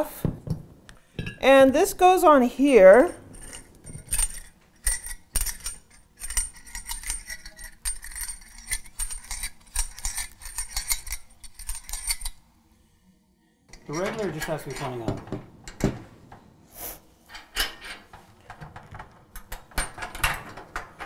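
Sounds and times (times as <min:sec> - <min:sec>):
metallic clicks and scrapes: 0:02.9 - 0:12.4, 0:13.7 - 0:15.1.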